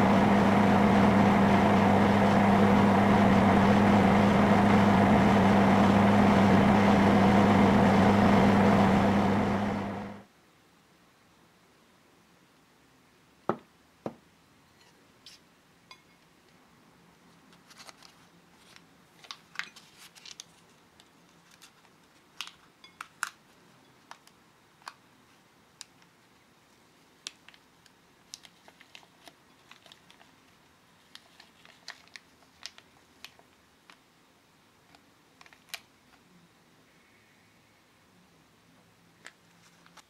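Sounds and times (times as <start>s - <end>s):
paper crinkles and ticks: 17.4s - 34.0s, 34.9s - 36.2s, 39.2s - 40.0s.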